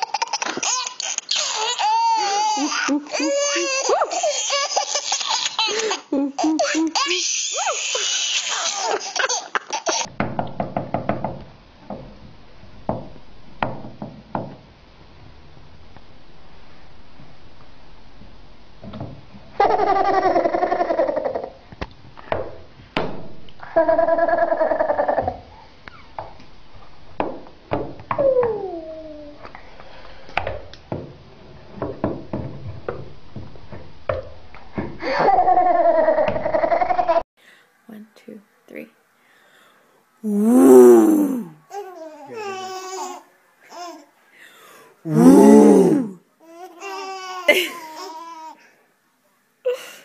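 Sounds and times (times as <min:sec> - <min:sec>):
child laughing: 0:00.0 - 0:10.1, 0:47.5 - 0:47.9
person speaking: 0:40.2 - 0:41.6, 0:45.1 - 0:46.2.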